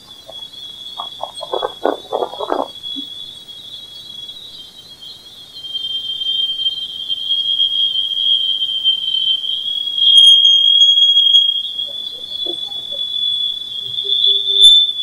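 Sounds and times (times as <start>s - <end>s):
high-pitched whistling band: 4.1s - 15.0s.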